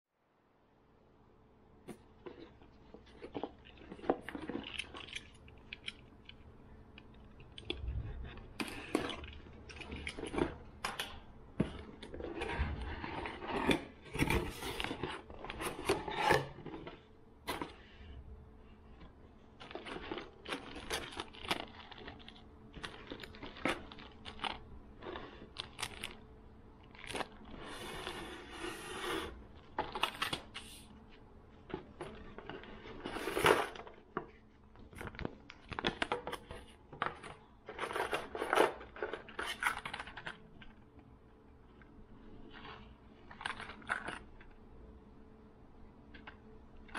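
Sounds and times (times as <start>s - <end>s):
plastic bags rustling and crinkling: 19.4s - 40.9s.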